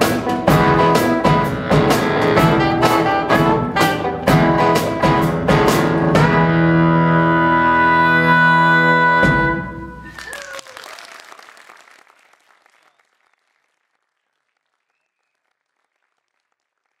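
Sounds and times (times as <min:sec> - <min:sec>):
blues band playing: 0:00.0 - 0:10.3
audience applause: 0:10.0 - 0:17.0.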